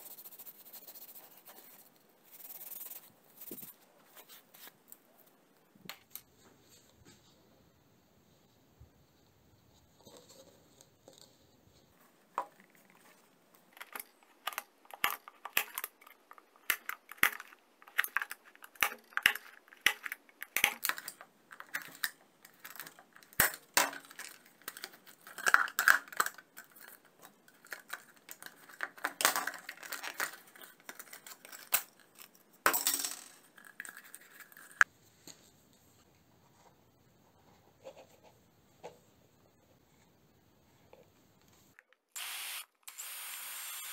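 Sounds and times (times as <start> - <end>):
plastic parts clicking and rattling: 12.3 - 34.9.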